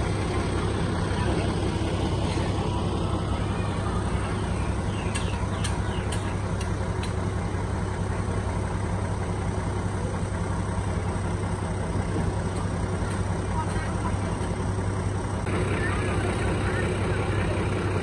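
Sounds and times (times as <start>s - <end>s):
truck engine idling: 0.0s - 18.0s.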